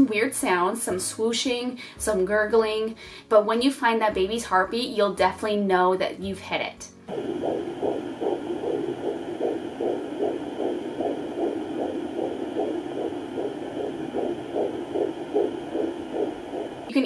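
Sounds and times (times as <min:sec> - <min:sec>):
fetal heartbeat on doppler speaker: 0:07.1 - 0:17.0.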